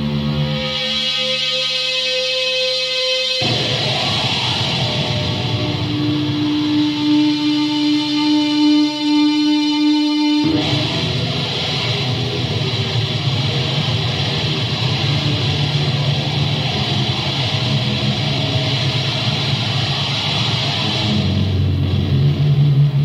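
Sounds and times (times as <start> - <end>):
distorted guitar and bass chords: 0.0 - 23.0.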